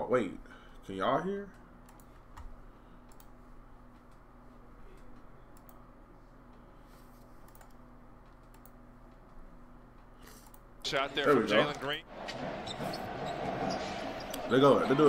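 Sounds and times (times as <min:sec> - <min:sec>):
low electrical hum: 0:00.0 - 0:15.0
keyboard and mouse clicks: 0:07.4 - 0:09.4.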